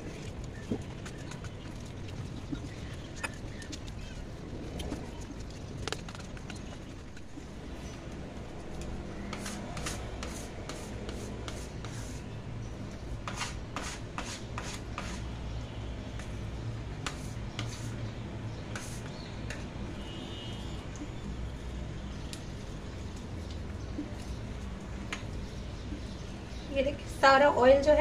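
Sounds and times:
hands kneading dough: 0:00.0 - 0:20.0, 0:20.8 - 0:26.6
bench scraper scraping counter: 0:09.3 - 0:12.2, 0:13.3 - 0:15.2.

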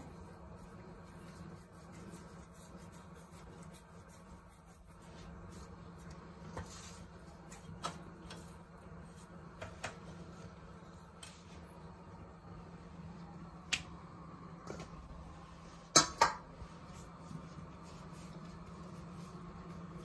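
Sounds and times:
dough rubbed between palms: 0:00.0 - 0:12.2, 0:16.6 - 0:20.0
low steady hum: 0:00.0 - 0:20.0.

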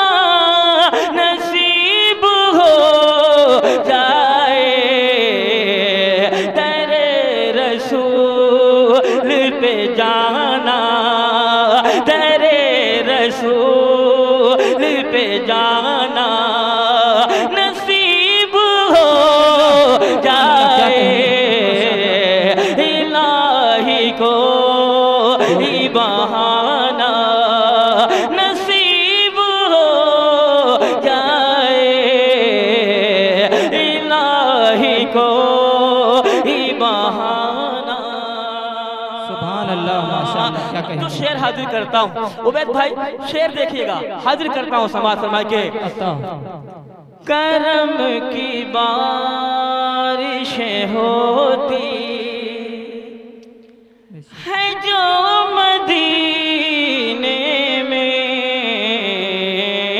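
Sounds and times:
man singing unaccompanied: 0:00.0 - 0:53.4, 0:54.1 - 0:59.9.

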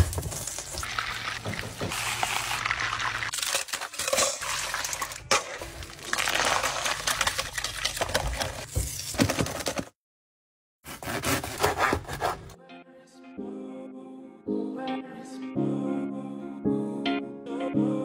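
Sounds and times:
metal bowls clinking with ice: 0:00.6 - 0:08.4.

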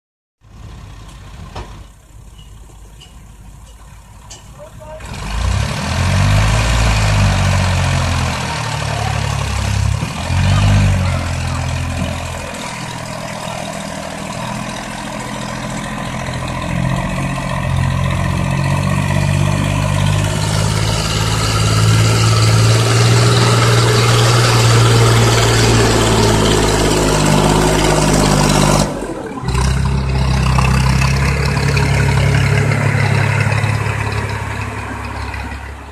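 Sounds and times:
tractor diesel engine under load: 0:00.4 - 0:35.9.

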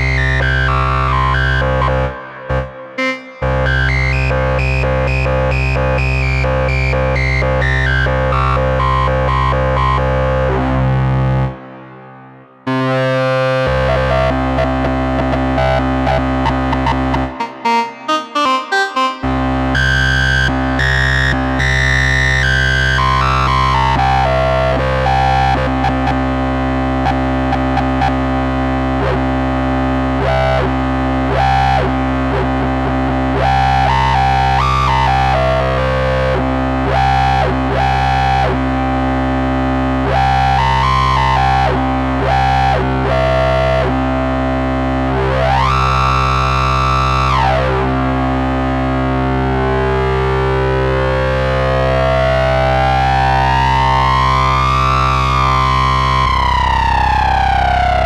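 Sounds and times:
analog synthesizer playing: 0:00.1 - 0:06.8, 0:12.7 - 0:25.6.

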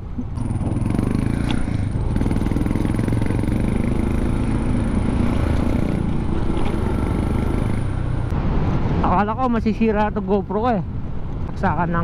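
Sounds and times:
scooter engine running: 0:00.2 - 0:08.2.

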